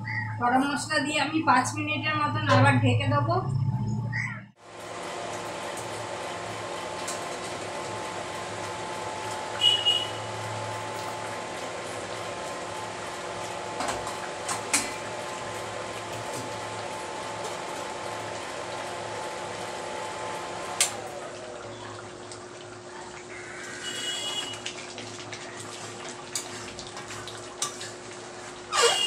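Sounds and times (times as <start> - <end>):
curry bubbling in a pan: 21.6 - 28.7.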